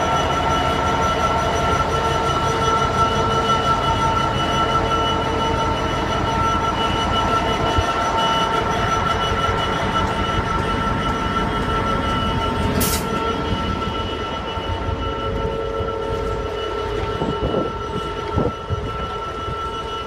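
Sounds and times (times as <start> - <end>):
diesel locomotive passing: 0.0 - 20.0
whining tones: 0.0 - 20.0
brief hiss: 12.8 - 13.1.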